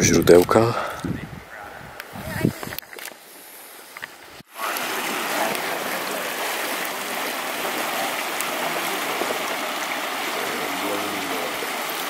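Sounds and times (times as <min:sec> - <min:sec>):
stream rushing over stones: 0:03.4 - 0:12.0.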